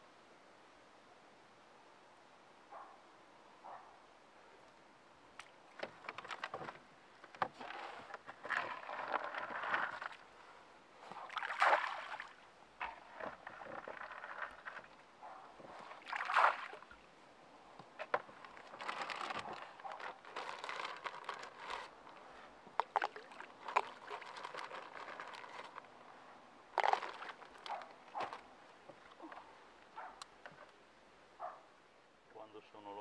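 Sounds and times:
plastic scoop in wet bait: 0:07.4 - 0:10.2, 0:12.8 - 0:15.0, 0:15.8 - 0:16.9, 0:18.0 - 0:22.2, 0:22.8 - 0:26.0, 0:26.7 - 0:29.4
water sloshing: 0:11.1 - 0:17.2, 0:17.8 - 0:26.0, 0:26.7 - 0:30.2.

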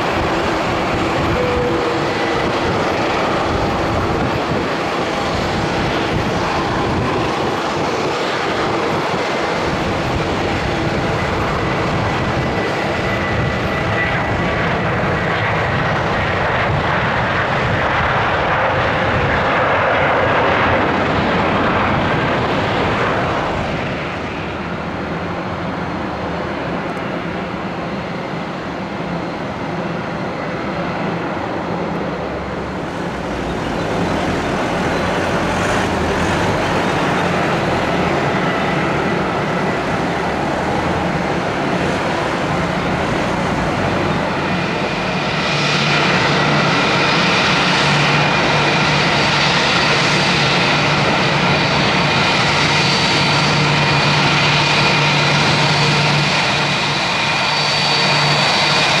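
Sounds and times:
high engine whine: 0:00.0 - 0:59.0
jet engines rushing: 0:00.0 - 0:59.0.

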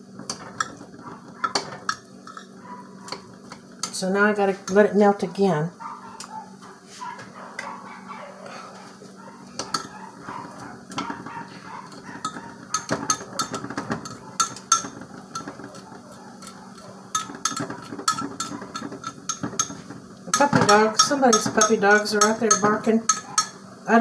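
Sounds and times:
utensil clinking against pot: 0:00.2 - 0:04.0, 0:09.6 - 0:23.6
distant dogs barking: 0:01.0 - 0:01.7, 0:02.4 - 0:03.4, 0:05.7 - 0:17.1, 0:23.1 - 0:23.6.

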